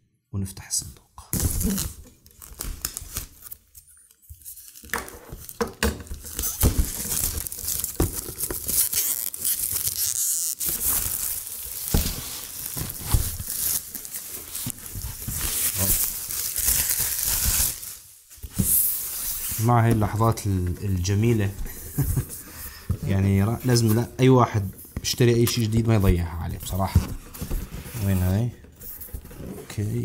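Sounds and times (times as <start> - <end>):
shrink wrap crinkling: 1.4 - 24.8.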